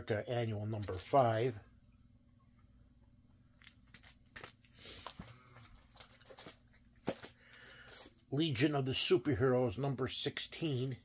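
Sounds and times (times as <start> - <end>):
plastic bags and paper crinkling: 0.6 - 1.6, 3.5 - 8.3.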